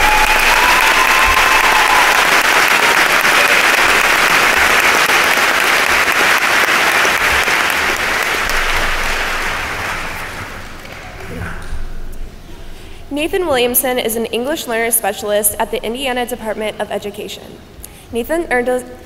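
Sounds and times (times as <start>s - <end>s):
audience applauding: 0.0s - 11.3s.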